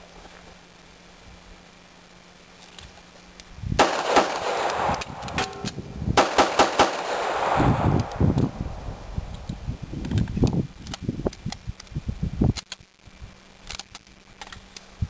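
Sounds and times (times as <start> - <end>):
magazine reload clicks: 3.8 - 8.6, 13.6 - 14.9
pistol shots with echo: 3.8 - 8.8.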